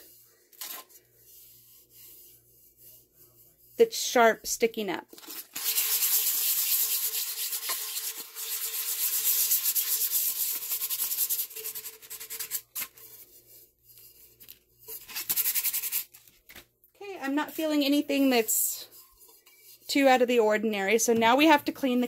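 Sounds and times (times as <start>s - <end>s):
hand sanding with sandpaper: 5.5s - 14.4s, 15.0s - 16.1s.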